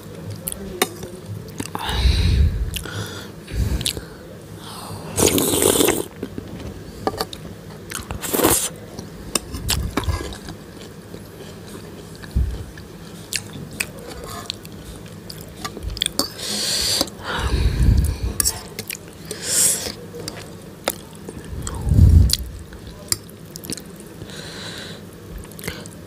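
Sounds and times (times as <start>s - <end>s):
noodle slurps: 5.2s - 6.1s.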